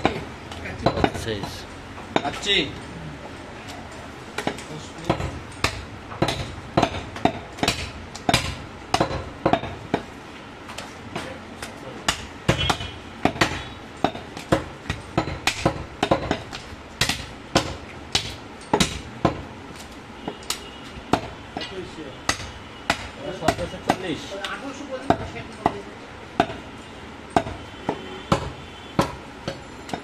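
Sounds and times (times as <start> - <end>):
cleaver chopping meat and bone: 4.4 - 10.1, 11.6 - 26.6, 27.3 - 30.0.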